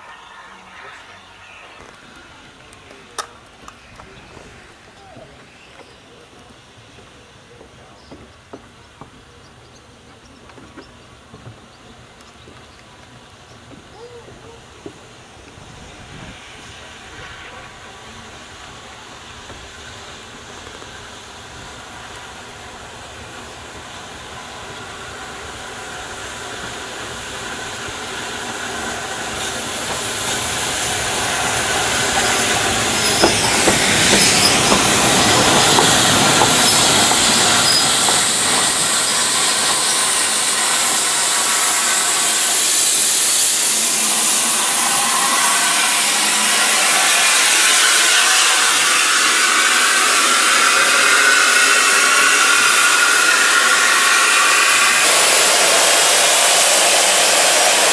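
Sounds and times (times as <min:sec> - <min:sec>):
steam hissing: 0:00.0 - 0:09.2, 0:13.0 - 0:57.9
steam locomotive approaching: 0:00.0 - 0:57.9
wheel or brake squeal: 0:32.9 - 0:40.0.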